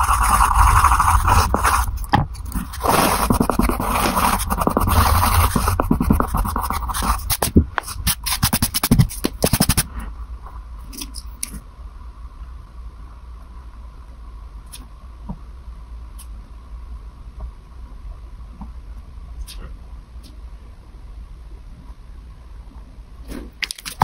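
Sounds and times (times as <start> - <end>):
hand brushing paper: 0.0 - 9.9.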